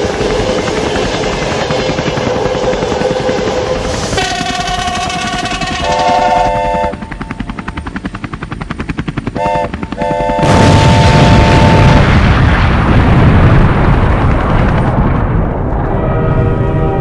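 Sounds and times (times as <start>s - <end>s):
helicopter rotor chopping: 0.0s - 12.2s
heavy rumble: 0.0s - 17.0s
locomotive air horn: 1.7s - 7.2s, 9.4s - 12.0s, 15.8s - 17.0s
loud explosion: 10.4s - 15.9s.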